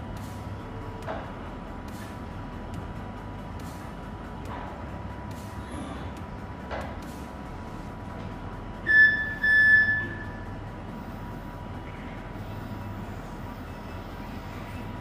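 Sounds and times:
electric forklift hum: 0.0s - 15.0s
high-pitched electronic beeps: 8.8s - 10.4s.

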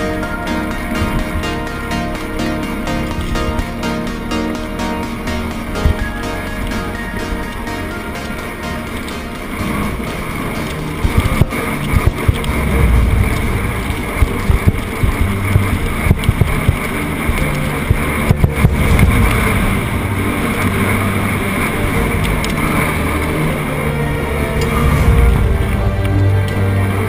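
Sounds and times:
wind buffeting microphone: 5.1s - 27.0s
bike rattling on dirt trail: 5.5s - 26.8s.

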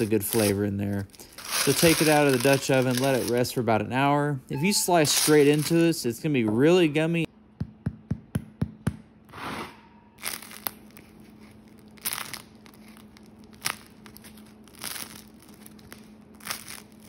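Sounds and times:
bread crust crackling: 0.0s - 3.6s, 10.2s - 17.0s
fingers tapping bread loaf: 7.6s - 9.0s.

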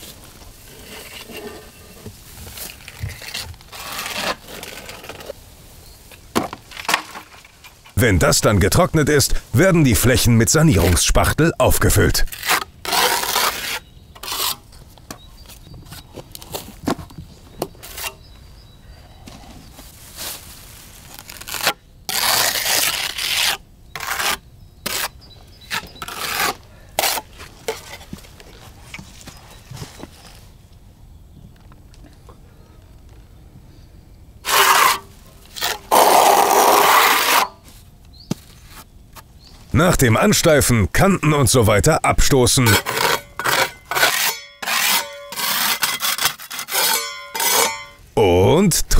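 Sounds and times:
trowel and spatula scraping: 0.6s - 5.3s, 11.0s - 14.8s, 17.8s - 18.2s, 21.4s - 28.1s, 34.4s - 37.7s, 42.2s - 48.0s.

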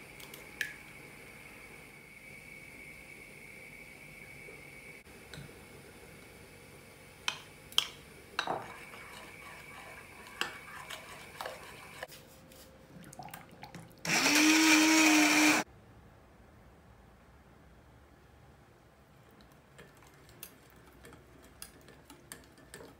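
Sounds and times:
electric kitchen motor running: 14.1s - 15.6s.

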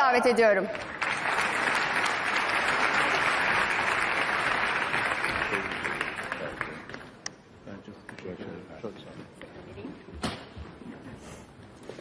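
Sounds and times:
large audience applauding: 0.7s - 7.2s.

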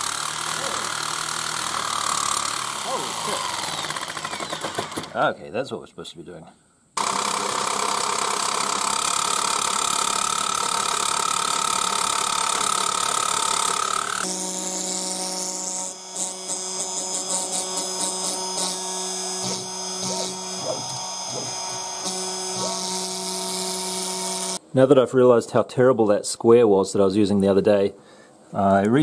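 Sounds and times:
jigsaw cutting metal plate: 0.0s - 5.2s, 7.0s - 24.6s
steady machine hum: 7.0s - 24.6s.

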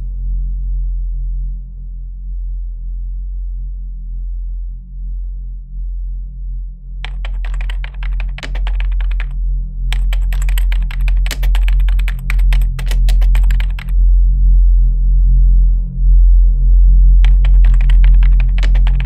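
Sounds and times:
computer keyboard typing: 7.0s - 13.9s, 17.2s - 19.0s.

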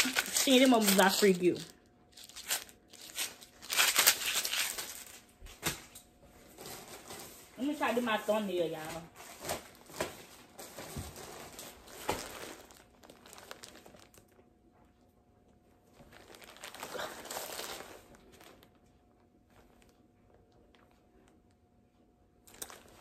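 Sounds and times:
plastic mailer bags crinkling: 0.0s - 14.4s, 15.9s - 18.8s, 22.4s - 23.0s.

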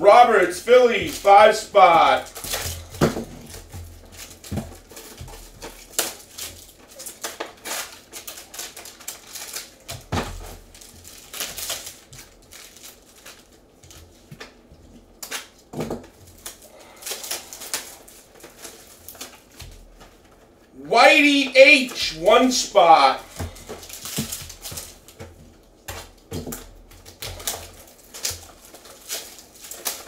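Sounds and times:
foil wrappers crinkling: 0.1s - 30.0s
trading cards clicking and rustling: 0.6s - 14.6s.

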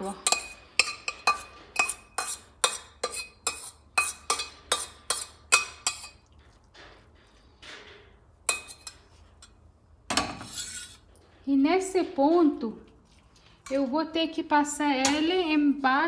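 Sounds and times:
spoon scraping colander: 0.0s - 6.6s, 10.3s - 11.1s.

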